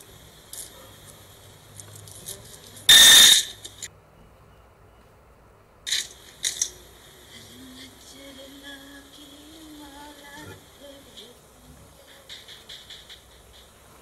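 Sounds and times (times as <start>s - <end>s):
banknotes and coins being handled: 0.5s - 3.9s
short noisy burst: 2.9s - 3.7s.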